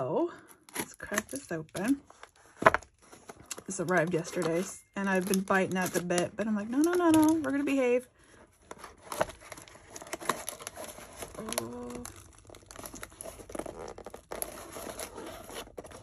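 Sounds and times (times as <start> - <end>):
cardboard rustling and tearing: 0.0 - 16.0.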